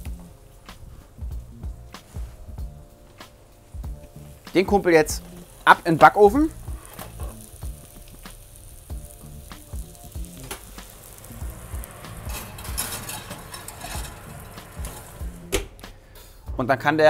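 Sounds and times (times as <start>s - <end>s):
mushrooms sizzling in a frying pan: 3.6s - 15.6s
pan knocking: 12.1s - 15.7s.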